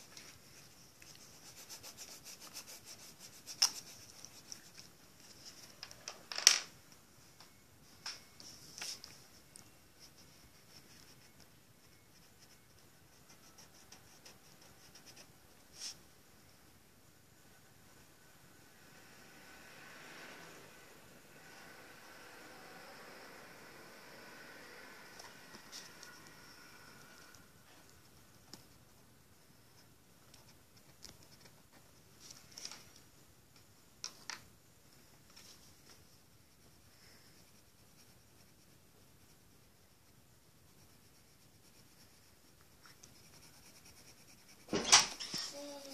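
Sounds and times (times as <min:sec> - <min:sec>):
pencil scratching on paper: 0:00.0 - 0:05.6, 0:10.0 - 0:16.0, 0:36.2 - 0:45.9.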